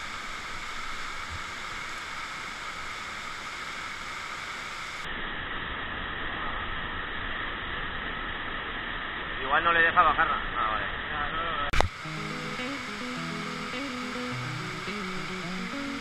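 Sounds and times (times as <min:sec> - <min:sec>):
rushing falling water: 0:00.0 - 0:07.5, 0:11.8 - 0:16.0.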